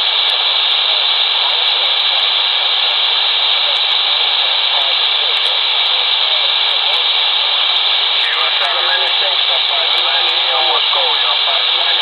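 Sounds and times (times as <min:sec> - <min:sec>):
faint wavering radio traces: 0:00.0 - 0:12.0
radio receiver hiss and static: 0:00.0 - 0:12.0.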